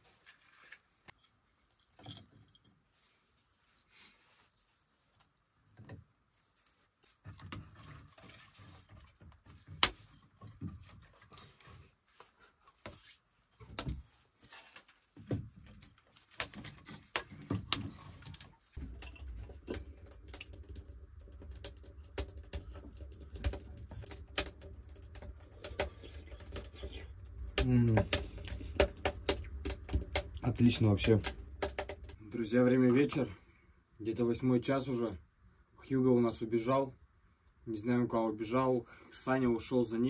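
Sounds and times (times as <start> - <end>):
kindling clicks and knocks: 15.3 - 32.2
wood fire crackling: 15.6 - 33.3.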